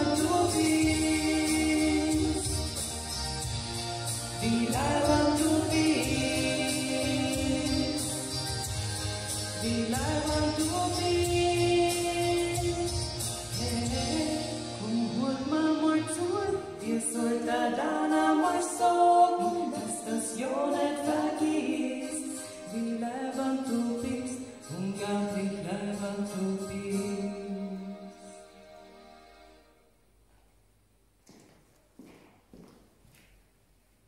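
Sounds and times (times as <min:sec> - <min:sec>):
women singing a duet: 0:00.0 - 0:02.9, 0:04.4 - 0:08.8, 0:09.6 - 0:27.7
musical accompaniment: 0:00.0 - 0:31.1.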